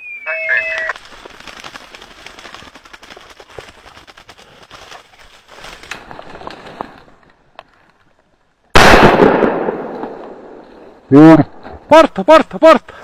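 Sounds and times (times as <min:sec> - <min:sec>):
brush rustling and crackling: 0:00.7 - 0:08.6.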